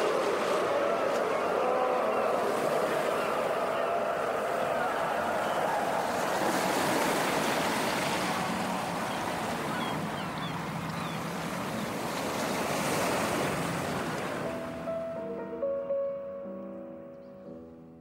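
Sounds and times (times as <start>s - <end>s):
sea waves surging: 0.0s - 15.4s.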